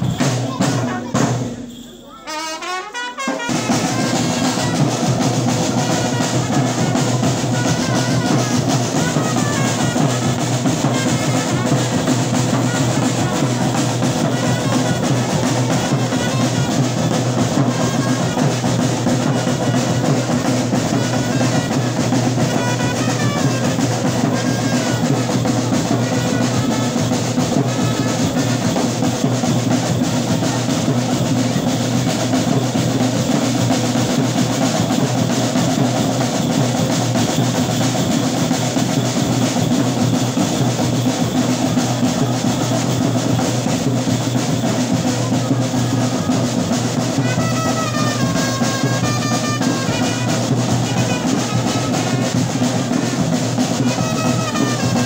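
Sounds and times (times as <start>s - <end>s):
music with continuous drumming: 0.0s - 55.0s.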